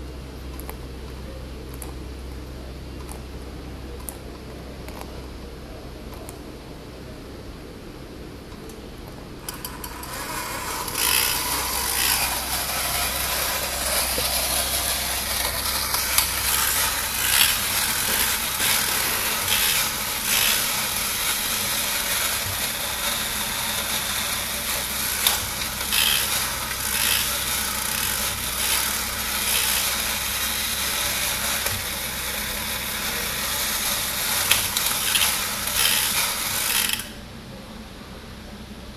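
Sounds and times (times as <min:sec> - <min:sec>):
toy motor rasping with clicks: 0:09.5 - 0:37.1.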